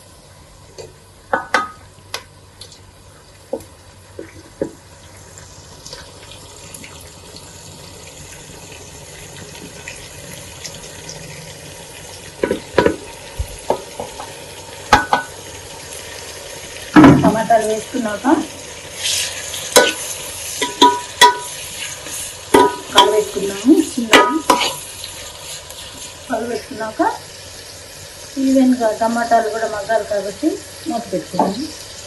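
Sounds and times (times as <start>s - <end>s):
onions sizzling in oil: 0.0s - 32.0s
knocks and clinks on a pot: 1.3s - 1.9s, 14.9s - 15.3s, 20.6s - 21.5s, 22.6s - 23.3s, 24.2s - 24.7s.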